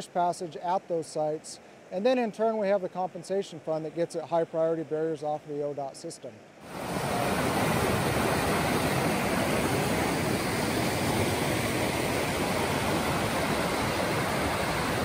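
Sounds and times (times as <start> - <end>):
creek rushing over rocks: 6.6 - 15.0.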